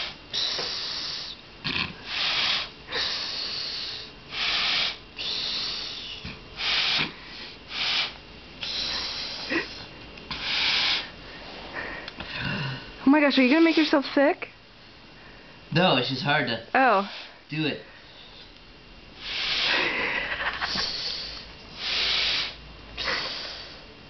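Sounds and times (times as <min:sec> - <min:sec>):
man snorting breaths through nose: 0:00.0 - 0:14.1, 0:19.2 - 0:23.9.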